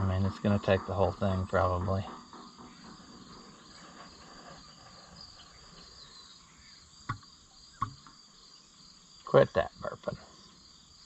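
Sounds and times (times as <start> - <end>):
jug glugging: 0.0 - 3.6.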